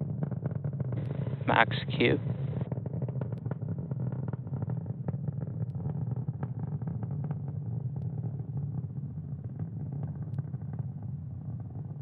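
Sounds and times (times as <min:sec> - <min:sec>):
rocket engines rumbling: 0:01.0 - 0:08.6.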